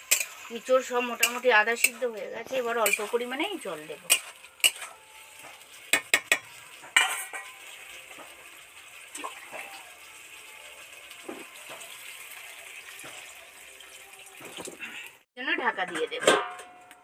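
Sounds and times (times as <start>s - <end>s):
curry sizzling in a pan: 0.0s - 15.3s
metal spatula knocking on a pan: 5.9s - 7.5s.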